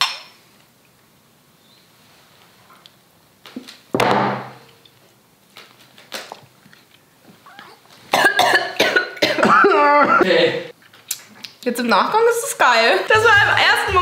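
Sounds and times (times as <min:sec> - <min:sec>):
glasses set down on table: 0:04.0 - 0:04.6.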